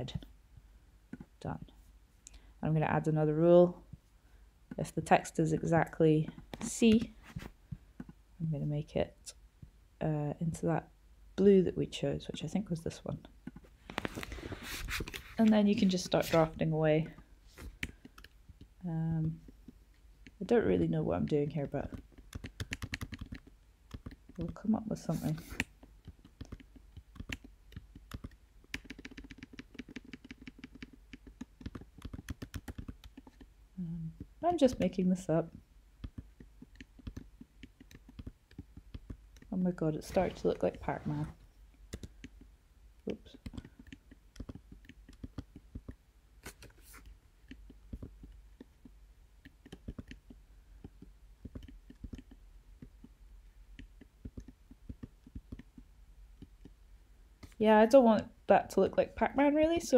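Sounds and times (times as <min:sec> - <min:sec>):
faint low hum: 0:00.0 - 0:59.9
keyboard keys tapping: 0:17.0 - 0:35.0, 0:36.0 - 0:40.8, 0:41.9 - 0:42.5, 0:43.1 - 0:53.2, 0:53.8 - 0:56.8.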